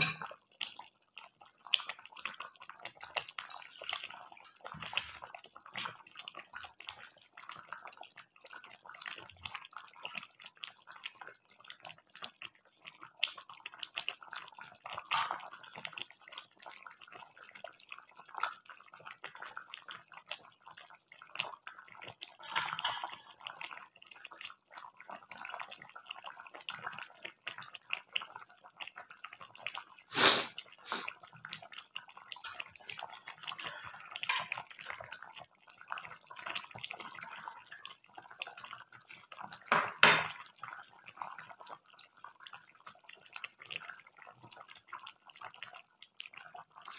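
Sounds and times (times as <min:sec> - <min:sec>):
curry bubbling in a pan: 0:00.0 - 0:46.9
knock on pan: 0:39.7 - 0:40.4.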